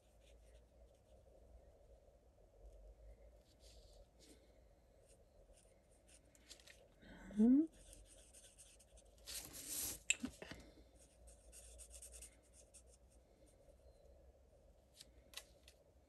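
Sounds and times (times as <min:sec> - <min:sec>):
paper rustle: 0:09.2 - 0:10.7.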